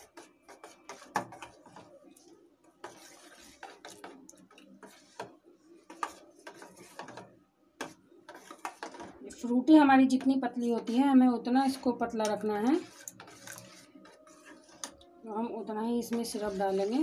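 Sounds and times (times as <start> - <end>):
spoon scraping a steel pot: 2.8 - 9.5, 11.6 - 15.1, 16.0 - 17.0.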